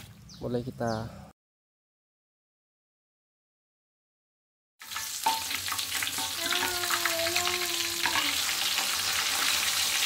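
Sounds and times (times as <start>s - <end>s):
fish frying in hot oil: 4.8s - 10.0s.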